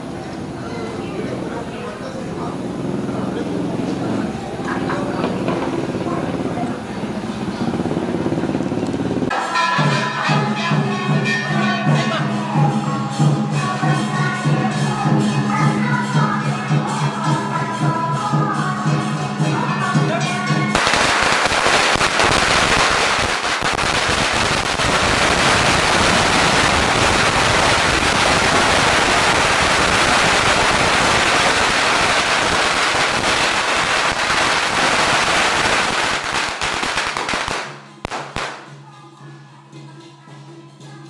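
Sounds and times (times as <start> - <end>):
music: 9.3 - 20.8, 37.0 - 41.0
firecrackers crackling: 20.6 - 38.8.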